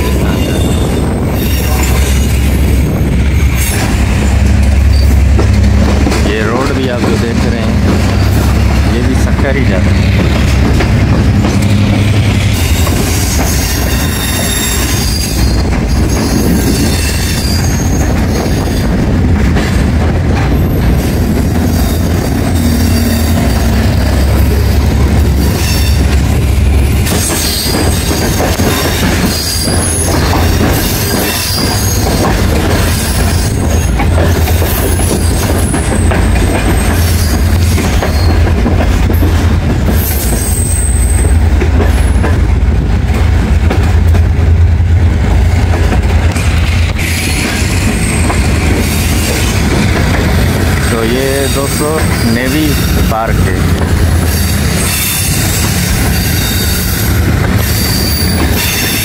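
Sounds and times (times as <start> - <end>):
train wheels rumbling on track: 0.0 - 59.0
wheels clacking: 1.7 - 59.0
high-pitched wheel squeals: 4.8 - 5.3, 12.5 - 18.8, 21.7 - 26.2, 27.1 - 32.2, 40.0 - 41.4, 54.2 - 59.0.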